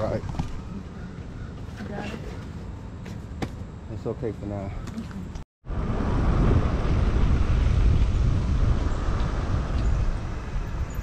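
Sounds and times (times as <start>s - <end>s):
road noise: 0.0s - 11.0s
wind rumble on microphone: 5.6s - 11.0s.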